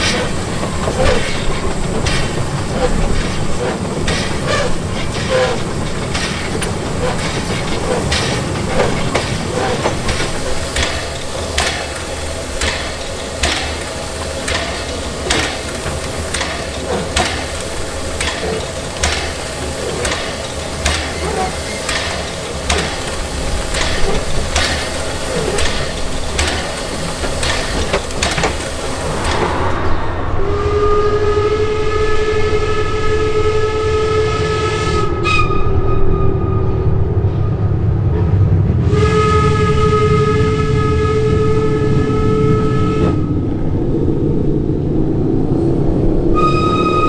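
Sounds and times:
steam hiss: 0.0 - 33.2
sharp locomotive beats: 0.0 - 47.0
steam locomotive running: 0.0 - 47.0.

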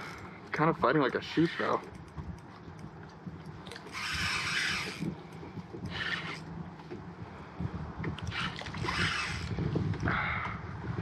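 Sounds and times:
fishing reel drag buzzing: 1.2 - 2.1, 3.7 - 6.5, 8.2 - 9.6.

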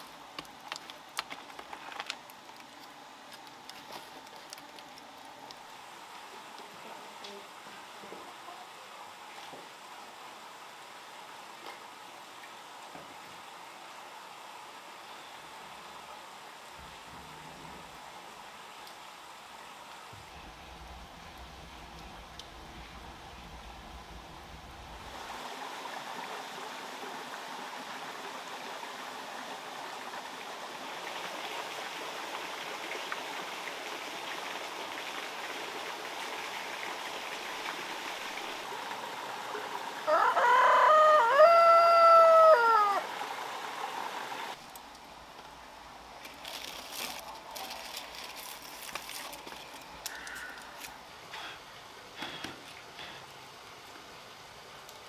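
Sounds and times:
outdoor background hiss: 0.0 - 55.0
leaves rustling: 30.9 - 51.8
rooster crowing: 40.0 - 43.2.

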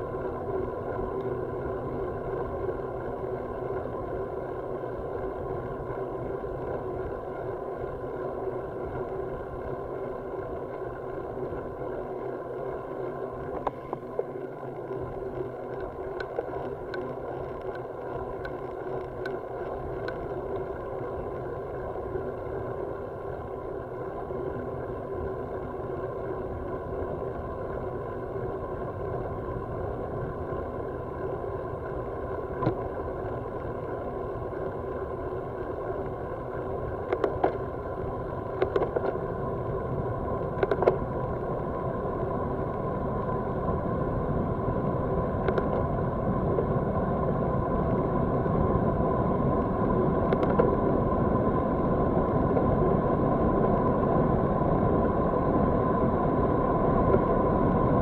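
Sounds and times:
bicycle tyres on asphalt: 0.0 - 58.0
bicycle clicks: 0.4 - 22.6, 32.5 - 39.4, 40.0 - 42.9, 45.3 - 46.8, 49.6 - 51.0.

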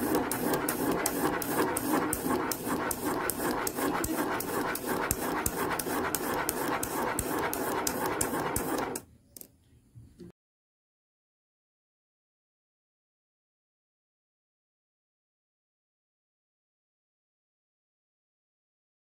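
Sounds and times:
pen scratching on paper: 0.0 - 9.0.

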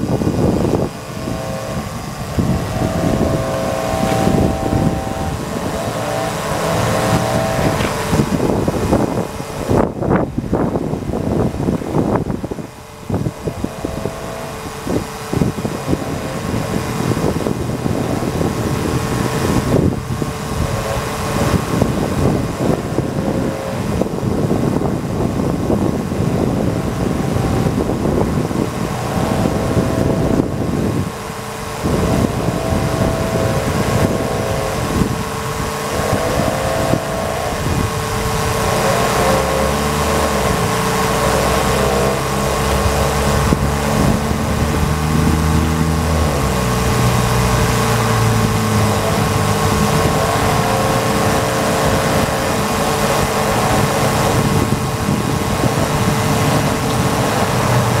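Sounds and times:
electric pump whining and rattling: 0.0 - 58.0.

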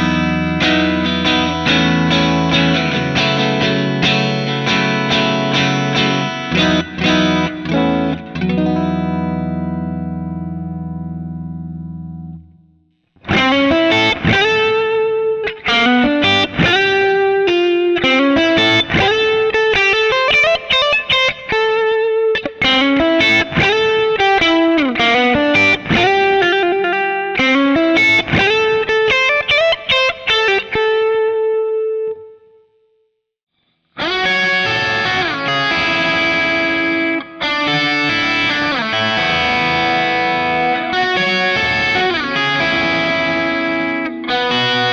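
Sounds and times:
distorted guitar chords: 0.0 - 32.8, 33.9 - 44.9
electric guitar lead line: 0.0 - 33.0, 33.9 - 44.9.

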